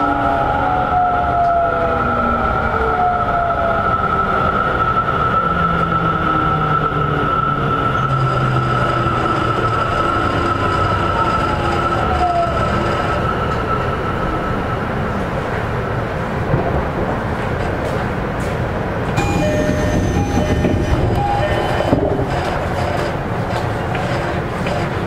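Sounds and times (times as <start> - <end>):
train wheel and track rumble: 0.0 - 25.0
train motor tones falling: 19.2 - 23.2.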